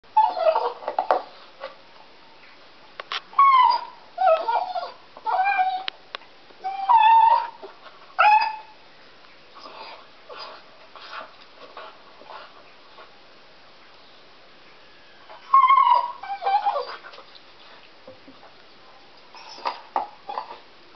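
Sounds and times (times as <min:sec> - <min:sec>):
dog whining cries: 0:00.1 - 0:01.0, 0:03.3 - 0:06.0, 0:06.6 - 0:08.8, 0:15.0 - 0:17.1.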